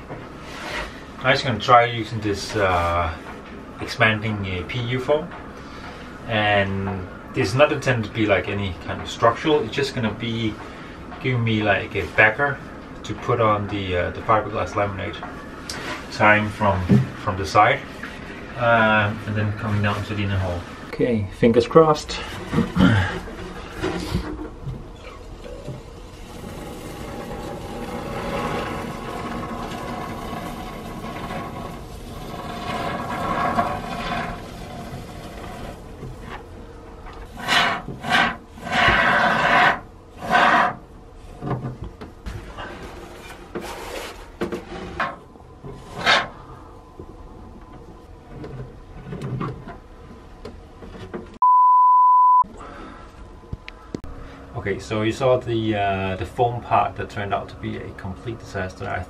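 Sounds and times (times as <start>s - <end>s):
censor bleep: 51.4s - 52.5s.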